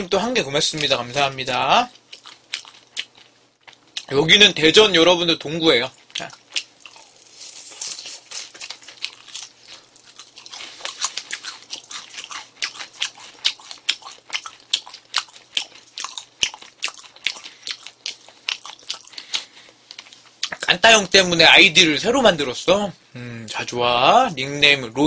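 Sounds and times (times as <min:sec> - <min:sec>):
person chewing crunchy food: 0:00.7 - 0:04.2, 0:05.9 - 0:20.6.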